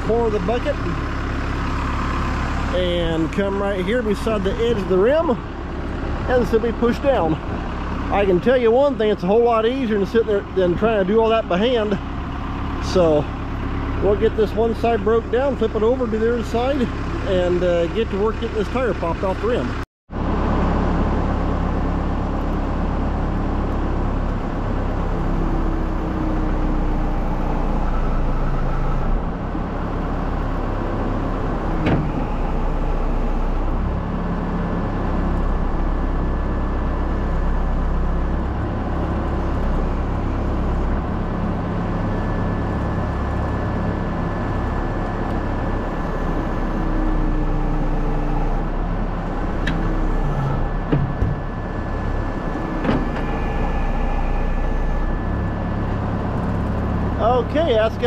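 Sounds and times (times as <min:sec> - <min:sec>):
diesel engine running: 0:00.0 - 0:58.0
hydraulics moving: 0:23.6 - 0:58.0
thin steady whine: 0:47.4 - 0:58.0.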